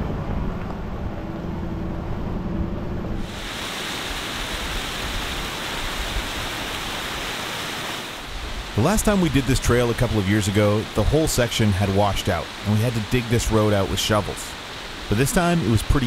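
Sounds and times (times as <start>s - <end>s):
vehicle engine rumbling low: 0.0s - 3.3s.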